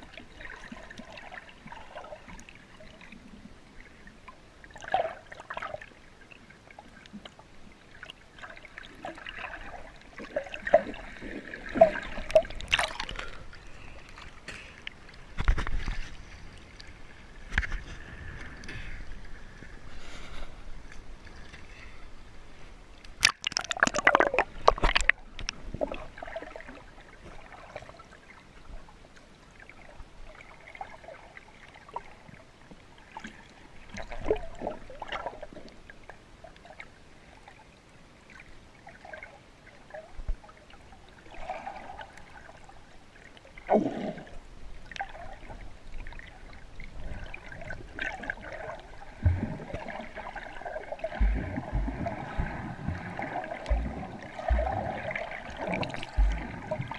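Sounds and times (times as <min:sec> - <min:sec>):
water splashing: 0:07.9 - 0:18.4, 0:23.2 - 0:28.2, 0:41.3 - 0:56.9
muffled underwater gurgles and bubbles: 0:46.8 - 0:56.9.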